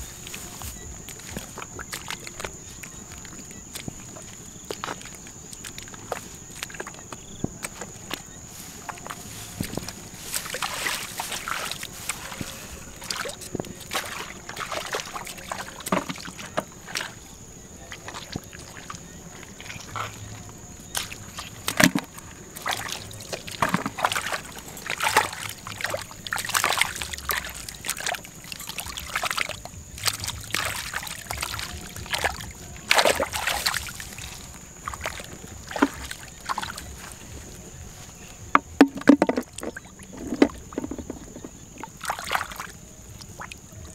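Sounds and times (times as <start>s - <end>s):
feet squelching through mud: 0.0s - 43.9s
hands splashing in muddy water: 8.9s - 17.2s, 17.9s - 37.6s, 38.6s - 43.6s.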